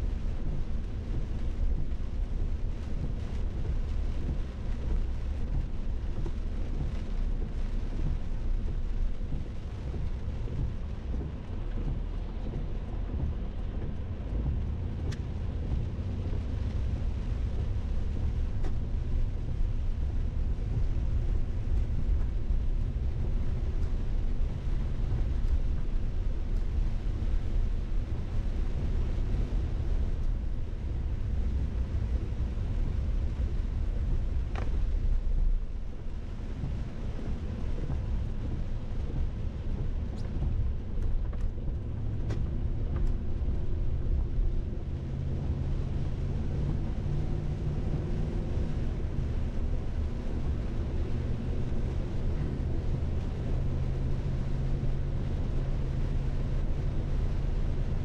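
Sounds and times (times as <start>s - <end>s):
low rumble: 0.0s - 58.0s
low steady hum: 0.0s - 58.0s
faint ticks: 34.3s - 35.0s.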